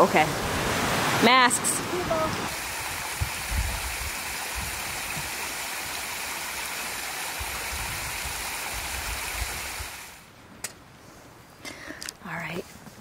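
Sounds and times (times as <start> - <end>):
mountain stream rushing: 0.0 - 10.3.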